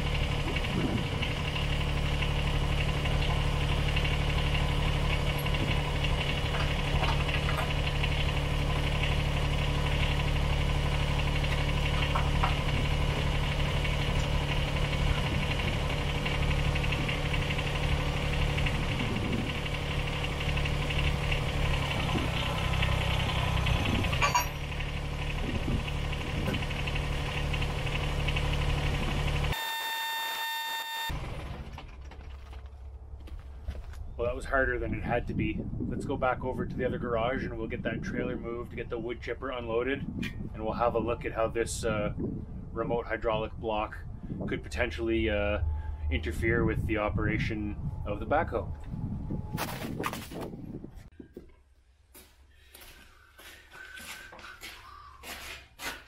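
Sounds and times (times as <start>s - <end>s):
tractor diesel engine idling: 0.0s - 29.6s
short high electronic tone: 29.6s - 31.1s.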